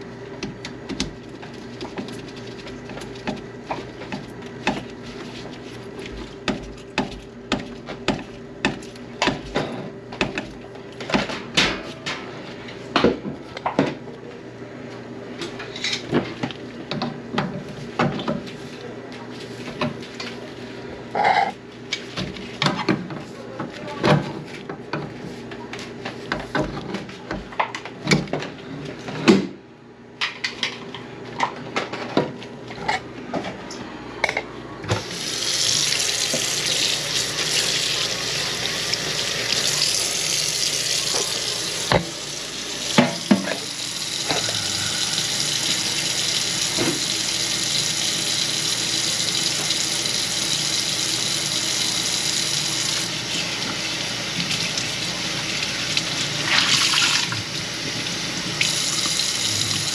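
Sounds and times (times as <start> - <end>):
water running into sink: 35.0 - 59.9.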